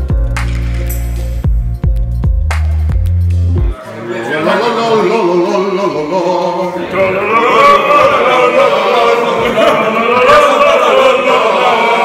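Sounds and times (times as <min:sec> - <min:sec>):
men singing a chant: 0:04.2 - 0:12.0.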